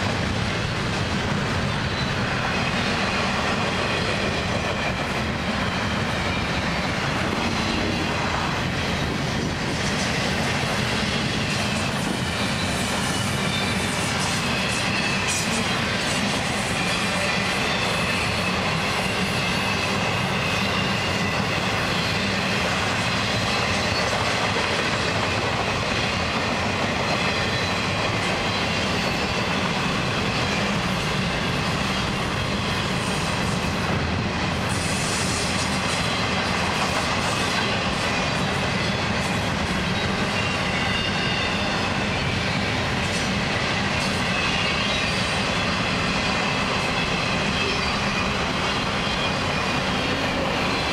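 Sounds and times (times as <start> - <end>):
freight cars rolling on rails: 0.0 - 50.9
faint high wheel squeal: 1.7 - 7.9, 11.0 - 24.2, 27.0 - 33.6, 37.3 - 50.9.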